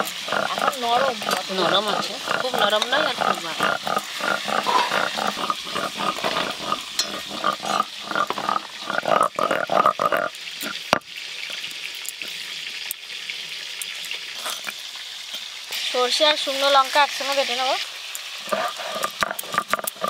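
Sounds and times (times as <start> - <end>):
vegetable pieces clattering in steel bowls: 0.0 - 8.6, 18.8 - 20.0
fish sizzling in oil: 0.0 - 20.0.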